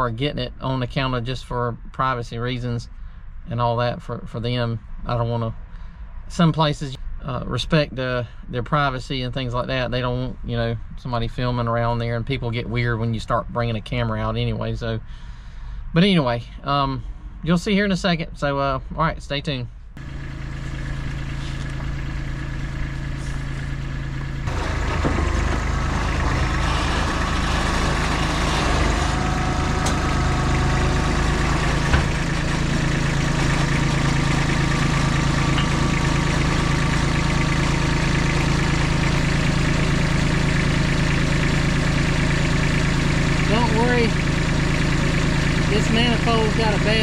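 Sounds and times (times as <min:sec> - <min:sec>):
vehicle engine humming: 0:19.8 - 0:47.0.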